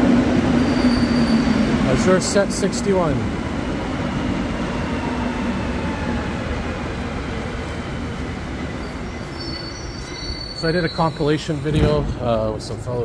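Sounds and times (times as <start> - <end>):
train rolling with motor whine: 0.0 - 13.0
high brake squeal: 0.6 - 1.9, 8.8 - 11.7.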